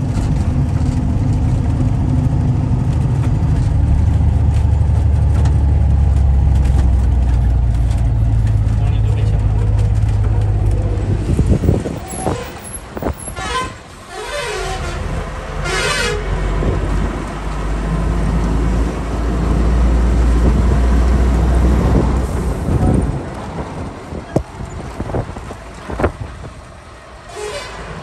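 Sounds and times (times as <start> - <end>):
road noise: 0.0 - 28.0
truck engine drone: 0.0 - 28.0
vehicle horn: 12.1 - 16.4, 27.3 - 27.9.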